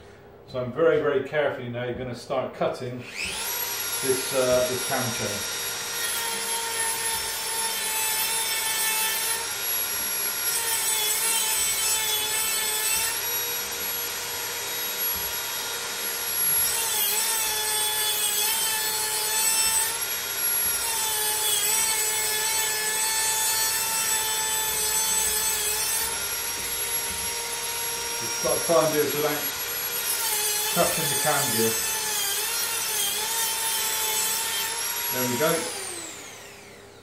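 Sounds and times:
rotary grinder cutting steel chain: 3.1 - 36.8.

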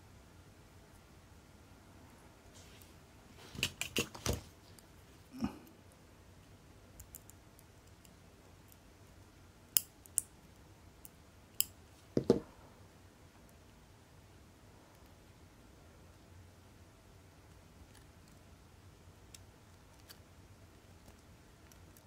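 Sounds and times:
dull knocks: 12.2 - 12.5
light knocks on workbench: 12.2 - 12.5.

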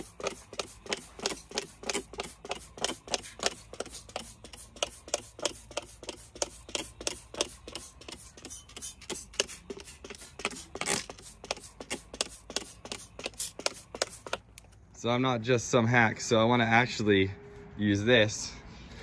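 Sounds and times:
spray bottle spritzing: 0.0 - 14.5.

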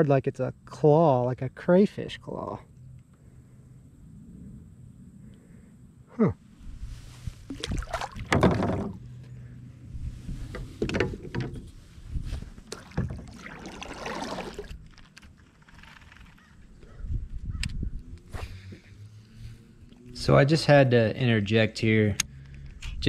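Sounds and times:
knocks and bumps on kayak: 7.6 - 9.0, 10.5 - 11.7.

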